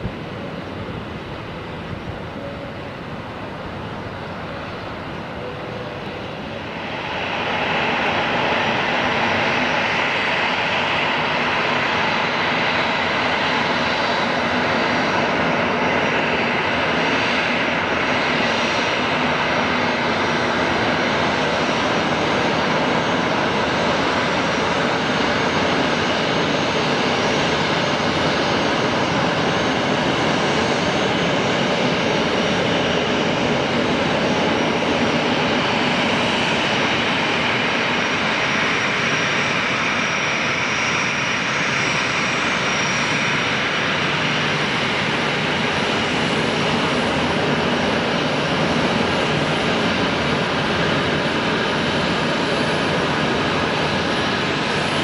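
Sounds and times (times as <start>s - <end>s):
jet engines running with whine: 0.0s - 55.0s.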